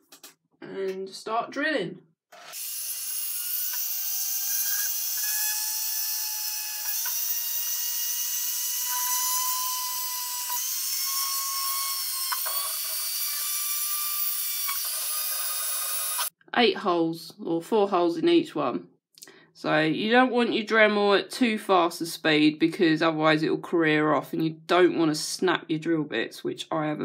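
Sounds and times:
rotary tool high whine: 0:02.3 - 0:16.3.

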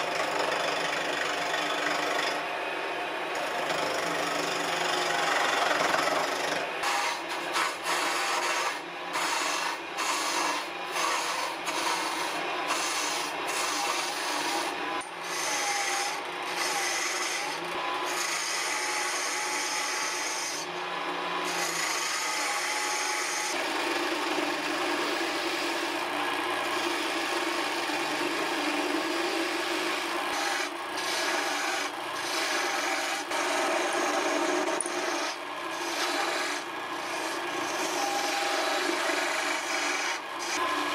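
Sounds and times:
gouge shaving wood on lathe: 0:00.0 - 0:02.4, 0:03.4 - 0:40.9.

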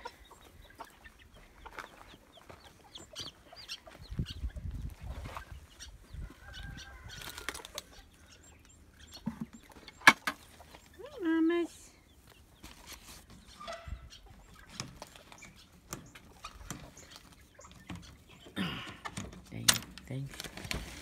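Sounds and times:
chickens clucking: 0:00.0 - 0:19.4
chicks peeping: 0:00.0 - 0:19.4
rustling and handling noise: 0:12.6 - 0:13.5, 0:19.1 - 0:21.0.

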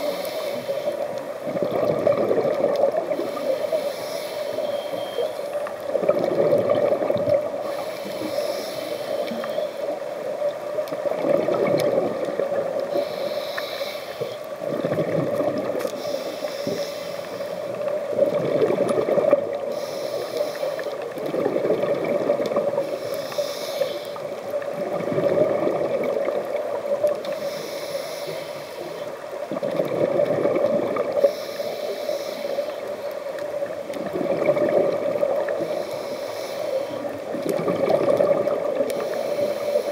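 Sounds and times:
regulator breathing hiss: 0:00.0 - 0:01.3, 0:03.1 - 0:05.7, 0:07.6 - 0:10.1, 0:12.8 - 0:14.5, 0:15.9 - 0:17.9, 0:19.6 - 0:21.1, 0:22.8 - 0:24.6, 0:27.2 - 0:29.3, 0:31.2 - 0:33.4, 0:35.5 - 0:37.4, 0:38.8 - 0:39.9
exhaled bubbles gurgling: 0:00.0 - 0:39.9.

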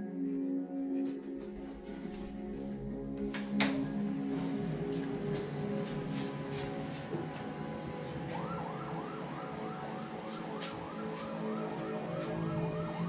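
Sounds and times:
music with steady beat: 0:00.0 - 0:13.0
warbling siren-like wail: 0:03.9 - 0:13.0.

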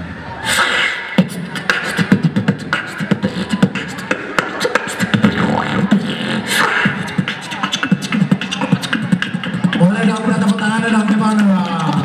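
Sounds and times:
beatboxing through speakers: 0:00.0 - 0:12.0.

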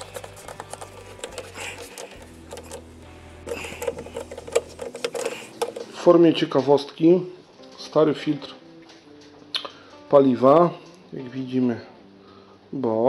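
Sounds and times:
screwdriver clicking and scraping: 0:00.0 - 0:02.9, 0:03.5 - 0:06.0.

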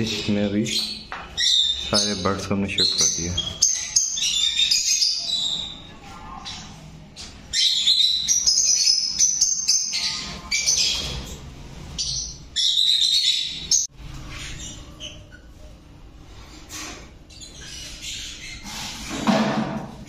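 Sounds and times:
lovebirds chattering and screeching: 0:00.0 - 0:19.3.

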